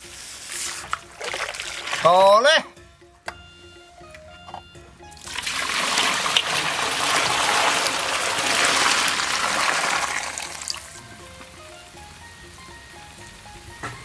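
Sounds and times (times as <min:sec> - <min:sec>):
liquid splashing into a pot: 0:00.4 - 0:02.2, 0:05.2 - 0:11.0.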